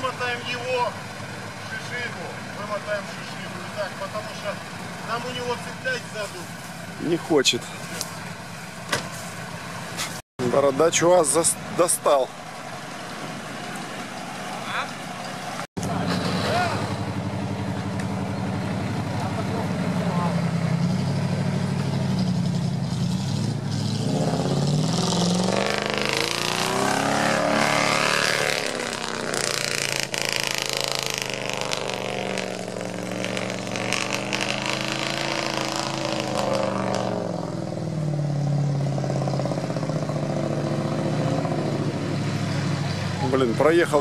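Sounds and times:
off-road engines revving: 0.0s - 44.0s
water churning and splashing: 10.8s - 15.7s.

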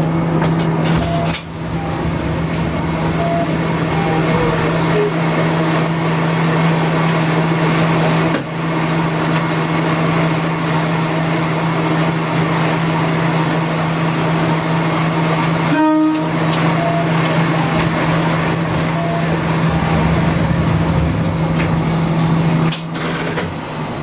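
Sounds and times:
railcar engine drone: 0.0s - 24.0s
train running on rails: 0.0s - 24.0s
train horn toot: 15.6s - 17.1s.

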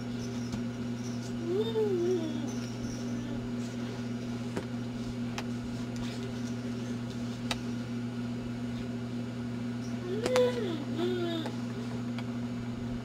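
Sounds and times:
steady low hum: 0.0s - 13.0s
baby cooing: 1.4s - 3.5s, 10.0s - 11.5s.

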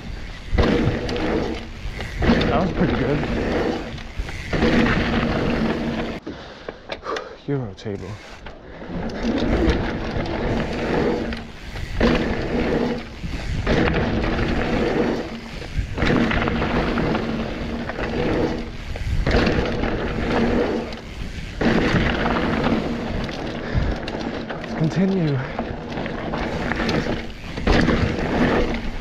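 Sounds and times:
bike tyres roaring on dirt: 0.0s - 6.2s, 7.8s - 29.0s
wind rumble on microphone: 9.3s - 24.1s.

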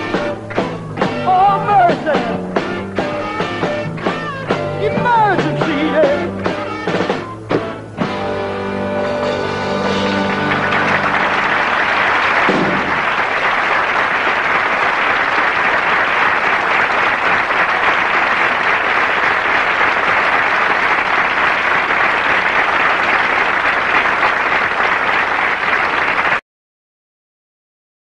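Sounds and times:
audience applauding: 9.7s - 26.4s.

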